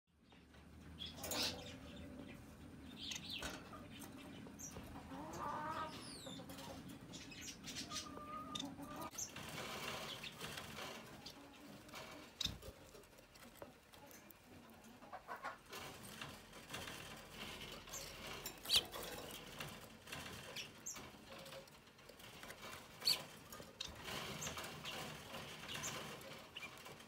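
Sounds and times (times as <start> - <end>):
finches chirping: 1.0 - 9.4, 17.9 - 18.9
buzzy bird calls: 1.0 - 13.7, 17.6 - 19.6, 22.4 - 27.0.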